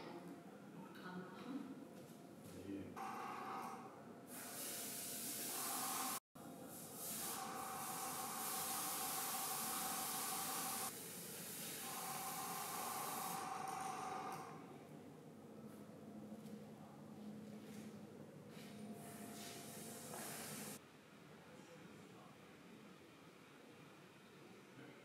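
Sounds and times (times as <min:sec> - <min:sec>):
airbrush spraying hiss: 0:04.3 - 0:13.4, 0:19.4 - 0:20.8.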